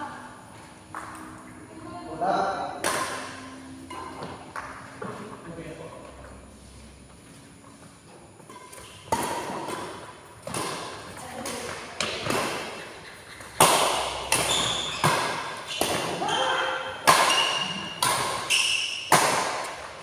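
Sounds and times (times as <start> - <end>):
rackets hitting shuttlecock: 2.7 - 4.9, 8.5 - 20.0.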